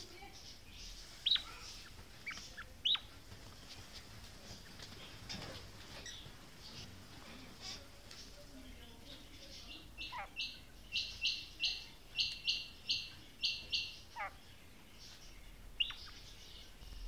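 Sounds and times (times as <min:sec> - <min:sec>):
quail calling: 0:10.0 - 0:14.4.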